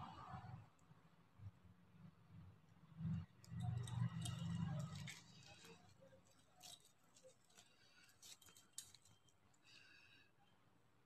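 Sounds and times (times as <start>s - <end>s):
plastic beads clicking: 3.5s - 9.6s.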